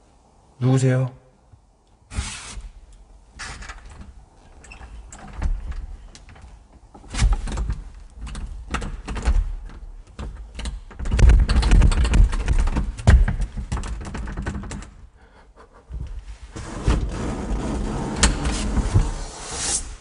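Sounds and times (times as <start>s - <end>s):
door knob rattling and clicking: 3.5s - 15.0s
door thumping: 7.0s - 15.0s, 16.6s - 19.5s.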